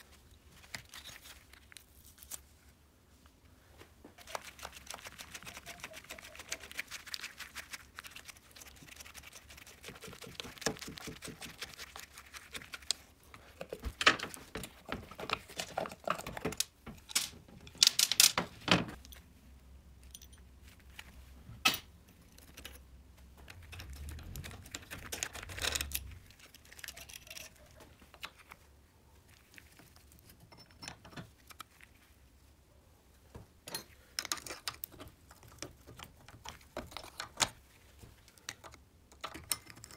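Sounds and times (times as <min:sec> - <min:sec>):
metal parts clinking: 0:17.0 - 0:18.4
screwdriver scraping metal casing: 0:23.5 - 0:28.2.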